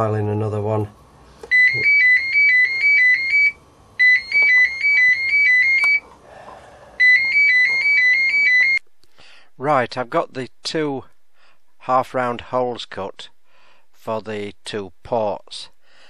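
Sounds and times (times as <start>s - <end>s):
telephone ringing: 1.5s - 6.0s, 7.0s - 8.8s.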